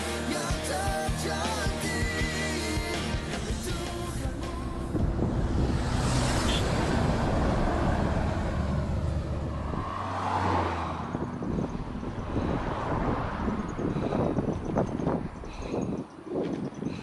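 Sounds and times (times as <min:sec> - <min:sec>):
diesel lorry engine passing: 0:03.0 - 0:15.5.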